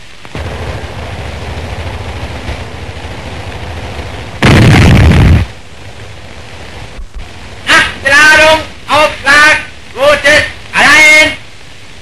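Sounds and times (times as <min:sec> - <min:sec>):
artillery gun blast: 0:00.3 - 0:05.7
low rumble: 0:00.3 - 0:07.6.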